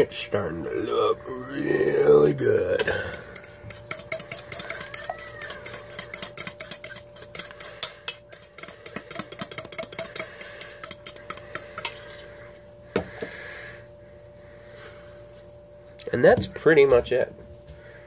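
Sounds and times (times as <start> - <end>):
spoon clinking and scraping bowl: 2.8 - 12.3.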